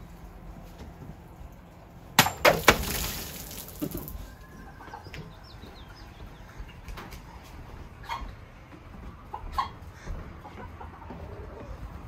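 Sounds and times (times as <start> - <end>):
blade chopping plastic jug: 2.2 - 4.1
water splashing and spraying: 2.5 - 4.2.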